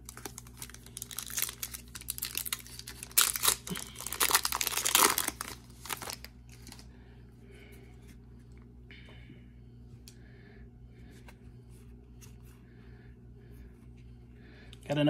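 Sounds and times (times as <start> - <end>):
foil wrapper crinkling and tearing: 0.0 - 6.9.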